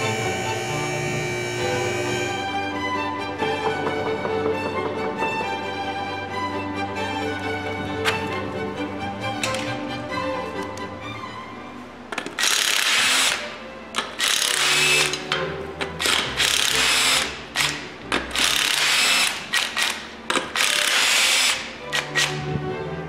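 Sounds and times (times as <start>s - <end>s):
impact wrench hammering: 16.0s - 22.4s.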